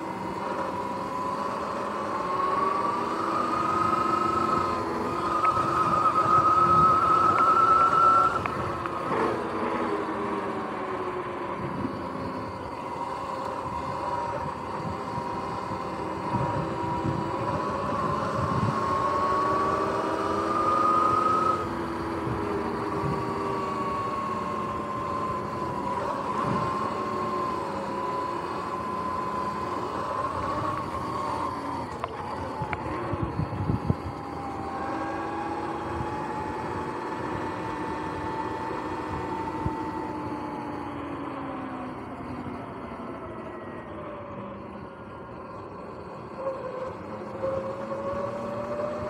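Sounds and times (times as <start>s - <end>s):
electric motor and belt whining: 0.0s - 49.0s
wind: 0.0s - 49.0s.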